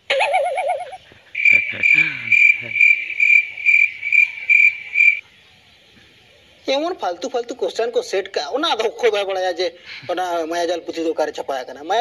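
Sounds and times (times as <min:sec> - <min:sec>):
cricket chirping: 0:00.6 - 0:05.3.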